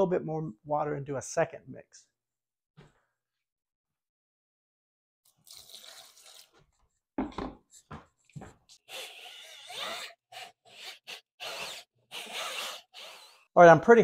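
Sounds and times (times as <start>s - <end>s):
water pouring: 5.3s - 6.7s
drill mixer churning mud: 8.9s - 13.5s.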